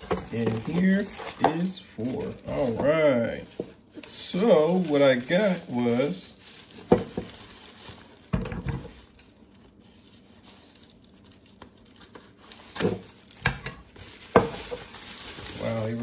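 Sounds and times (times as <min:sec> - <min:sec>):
packing paper rustling: 0:00.0 - 0:16.0.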